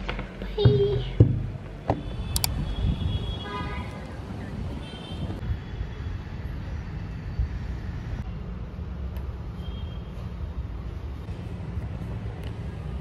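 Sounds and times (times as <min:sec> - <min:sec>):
road traffic rumble: 0:00.0 - 0:13.0
sharp click: 0:02.3 - 0:02.6.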